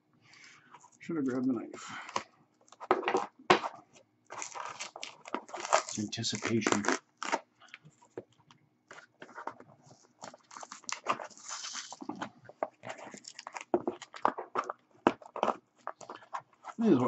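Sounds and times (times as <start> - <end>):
tape tearing on cardboard box: 4.3 - 7.5, 10.3 - 12.2.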